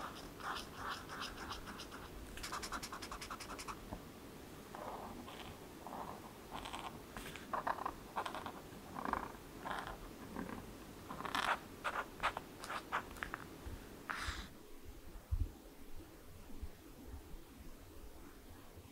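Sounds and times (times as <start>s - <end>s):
pen scratching on paper: 0.0s - 3.8s.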